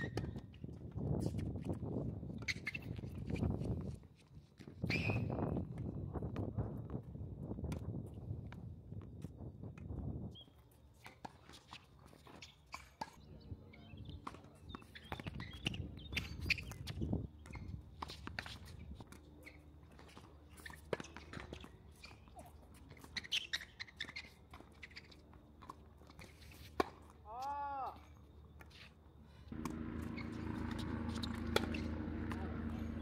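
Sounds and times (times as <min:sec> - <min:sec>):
faint clicks and scuffs: 0:09.2 - 0:13.2, 0:14.2 - 0:29.7.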